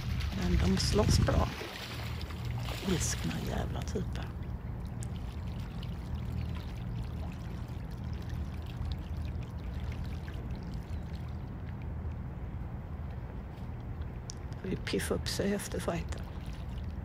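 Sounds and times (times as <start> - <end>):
ducks splashing in water: 0.0 - 11.9, 15.9 - 17.0
steady low rumble: 0.0 - 17.0.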